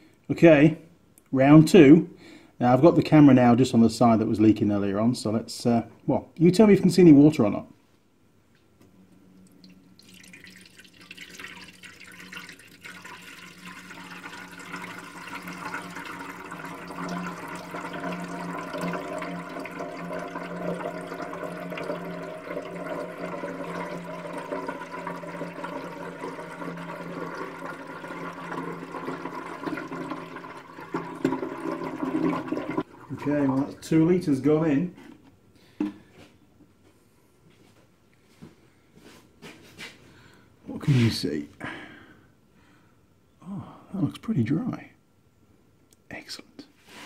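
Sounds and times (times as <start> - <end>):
water pouring into metal tank: 9.5 - 34.5.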